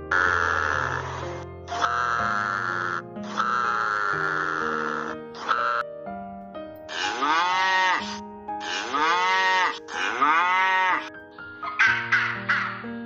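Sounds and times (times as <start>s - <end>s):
background music: 0.0s - 13.0s
cattle mooing: 0.1s - 5.8s, 6.9s - 11.2s.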